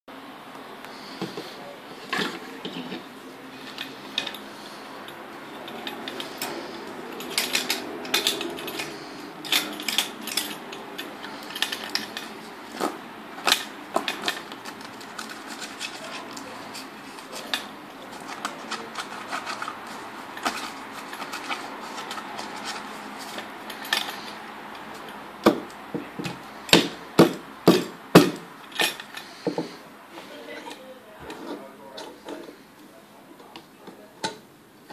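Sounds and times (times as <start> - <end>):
metal and wood clicks and knocks: 25.0 - 29.7.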